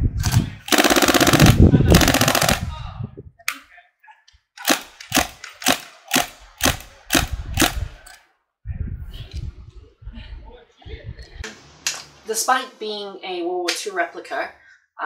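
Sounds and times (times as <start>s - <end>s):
airsoft gun full-auto burst: 0.7s - 2.6s.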